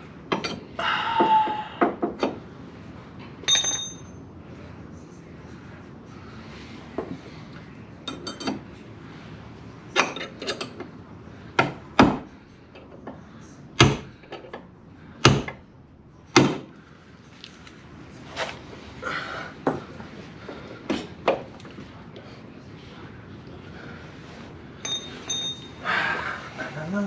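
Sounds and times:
light metal taps and clinks: 0:03.4 - 0:04.2, 0:24.8 - 0:25.8.

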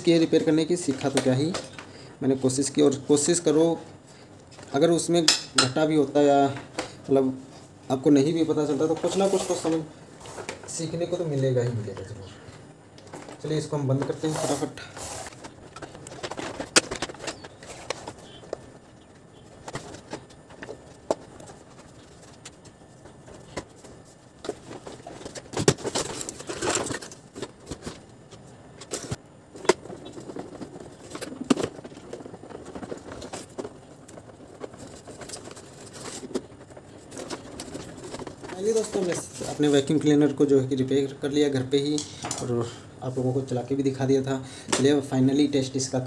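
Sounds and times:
clicks and knocks of plastic casing: 0:15.4 - 0:18.9, 0:19.6 - 0:39.4.

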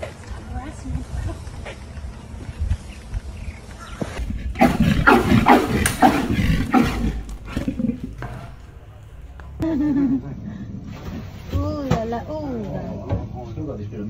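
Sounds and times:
bear growling and roaring: 0:04.2 - 0:08.8.

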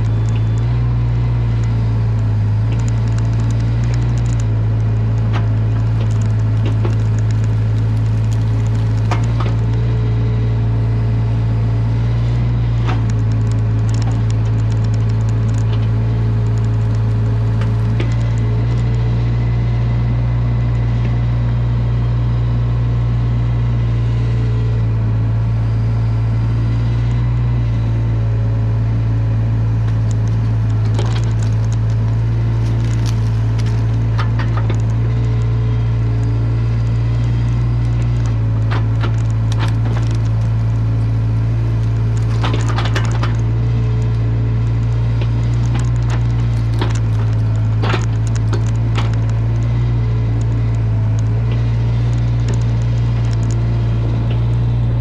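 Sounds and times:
sticks cracking under rake: 0:00.0 - 0:10.3, 0:12.0 - 0:19.5, 0:29.6 - 0:55.0
diesel engine running: 0:00.0 - 0:55.0.

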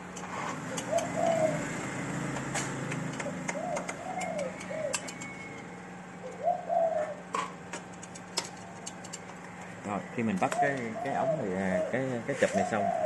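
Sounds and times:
steady low hum: 0:00.0 - 0:13.0
dove cooing: 0:00.6 - 0:07.6, 0:08.5 - 0:13.0
sharp clicks of handled parts: 0:07.3 - 0:09.8.

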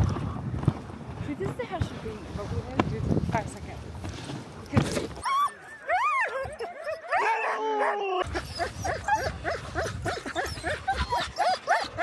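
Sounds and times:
dogs whining: 0:05.2 - 0:12.0
dogs yipping: 0:05.2 - 0:12.0.

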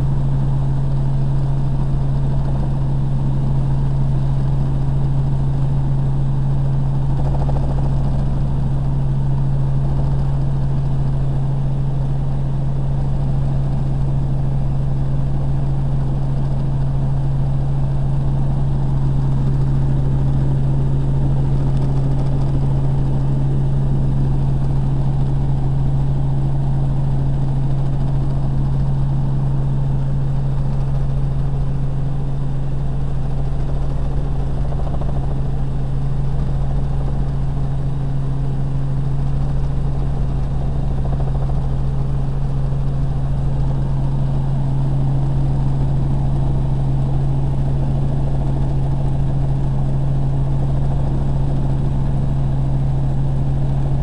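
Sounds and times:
helicopter engine and rotors droning: 0:00.0 - 0:54.0.

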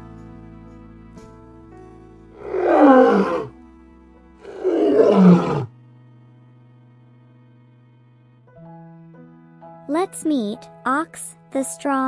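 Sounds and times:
soft background music: 0:00.0 - 0:12.0
lion roaring: 0:02.4 - 0:03.5, 0:04.4 - 0:05.7.

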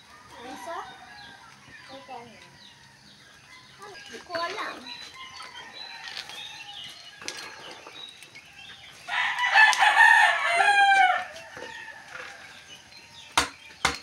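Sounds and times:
rooster crowing: 0:09.1 - 0:12.7.

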